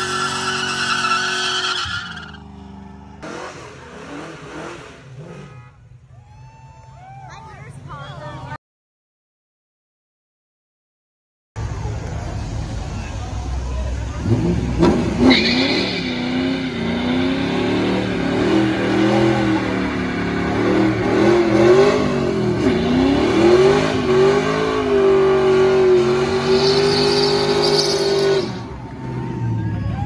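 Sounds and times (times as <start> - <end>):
tyre squeal: 0.0 - 2.4, 26.3 - 30.0
car engine revving high: 0.0 - 5.7, 14.1 - 29.2.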